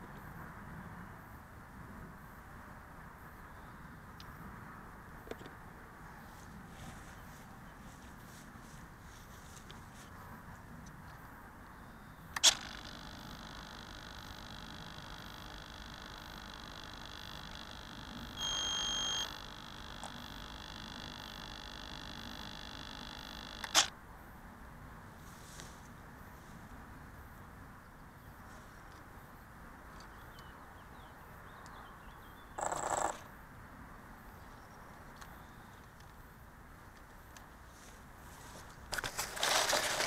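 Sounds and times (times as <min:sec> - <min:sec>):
electrical hum and hiss: 0:00.0 - 0:31.5
electronic beep: 0:12.4 - 0:23.9.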